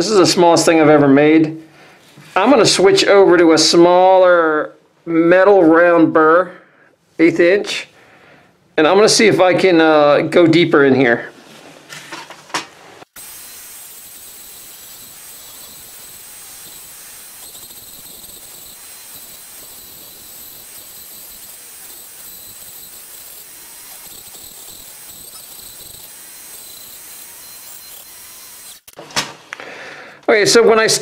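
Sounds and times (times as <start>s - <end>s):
rotary tool grinding wood: 13.1s - 29.0s.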